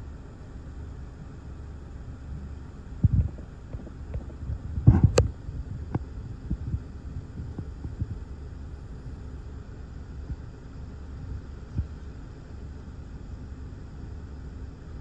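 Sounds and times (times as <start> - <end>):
heavy low thumps: 3.0 - 8.2
wind buffeting microphone: 3.0 - 8.4.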